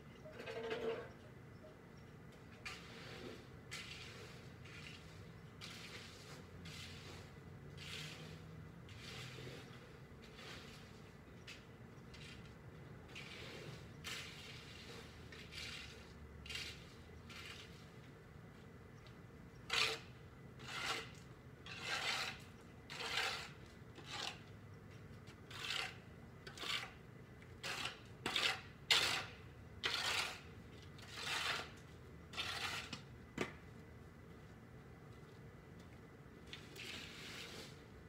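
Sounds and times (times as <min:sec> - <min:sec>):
short scraping strokes: 0:02.6 - 0:11.1, 0:12.2 - 0:17.9, 0:27.6 - 0:33.1, 0:36.5 - 0:37.9.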